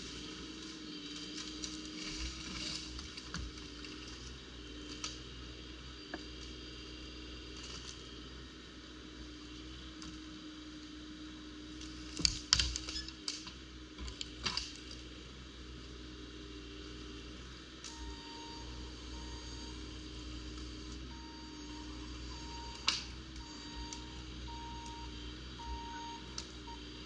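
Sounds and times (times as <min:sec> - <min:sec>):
excavator diesel engine humming: 0:00.0 - 0:27.0
sharp clicks and cracks: 0:12.2 - 0:13.5, 0:22.7 - 0:24.0.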